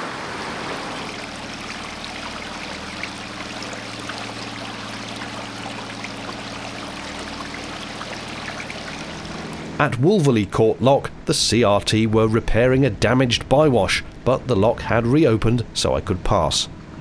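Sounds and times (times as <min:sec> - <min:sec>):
turbulent water rushing: 0:00.0 - 0:09.9
outboard motor running: 0:00.0 - 0:15.2.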